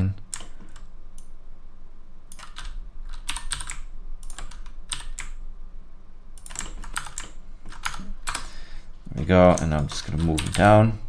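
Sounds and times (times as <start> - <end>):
computer keyboard keystrokes clicking: 0.3 - 1.3, 2.3 - 5.4, 6.4 - 8.5, 9.5 - 10.7.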